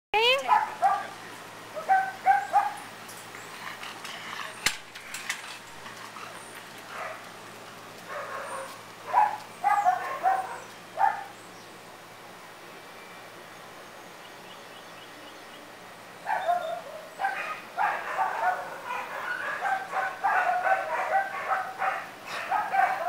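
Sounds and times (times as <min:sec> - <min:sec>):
dog barking: 0:00.4 - 0:02.8, 0:08.1 - 0:11.3, 0:16.3 - 0:23.0.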